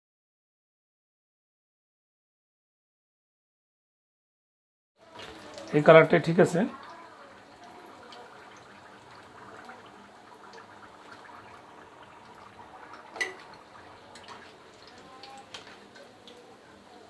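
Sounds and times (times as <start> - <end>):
deep-frying sizzle and bubbling: 5.0 - 17.0.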